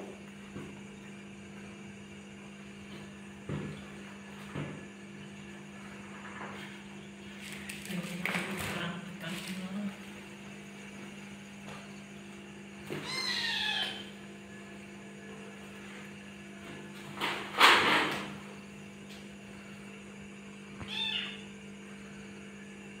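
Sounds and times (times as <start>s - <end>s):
low electrical hum: 0.0s - 23.0s
kitten meowing: 13.0s - 14.1s, 20.8s - 21.4s.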